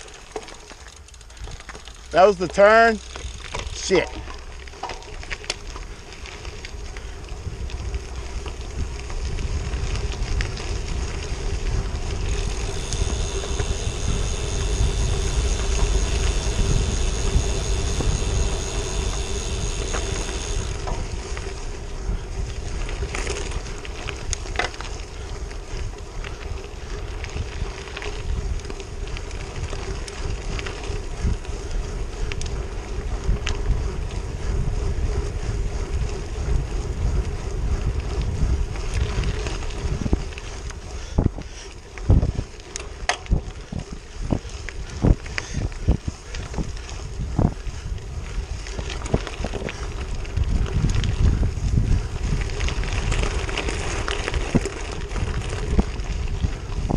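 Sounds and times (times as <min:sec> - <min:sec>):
tyres crunching on gravel: 0:00.0 - 0:41.2, 0:41.8 - 0:56.9
steady hum: 0:02.0 - 0:24.2
wind on microphone: 0:05.5 - 0:56.9
high whine: 0:06.6 - 0:22.1.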